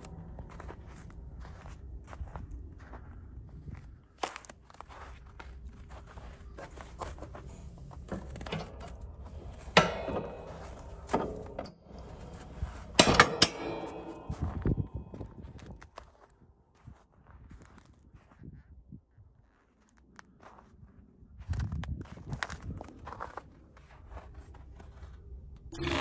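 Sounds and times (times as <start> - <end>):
metal pin clinking and clanking: 8.1 - 15.2, 25.8 - 26.0.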